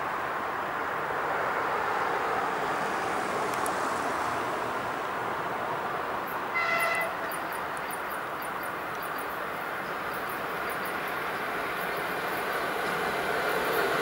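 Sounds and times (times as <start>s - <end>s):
train wheels rolling on rails: 5.2s - 14.0s
locomotive horn toot: 6.5s - 7.3s.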